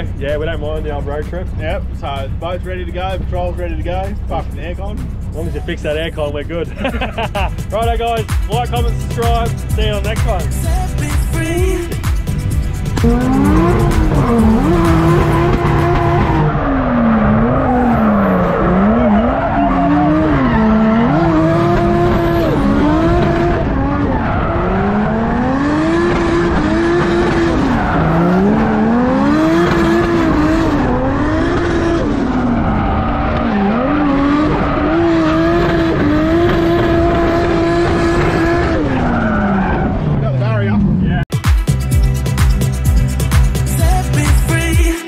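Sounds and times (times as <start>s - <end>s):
car engines revving hard: 0.0s - 41.2s
tyres squealing: 13.0s - 25.1s.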